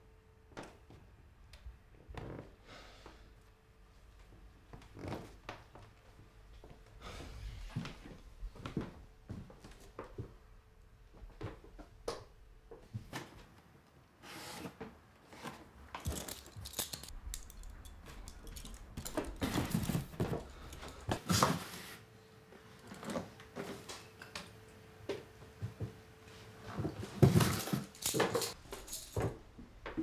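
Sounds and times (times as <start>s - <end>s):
metal handcuffs jangling: 16.0s - 19.4s, 27.9s - 29.2s
items dropped into cardboard boxes: 18.0s - 21.7s, 26.8s - 29.4s
cardboard rustling: 18.8s - 21.7s.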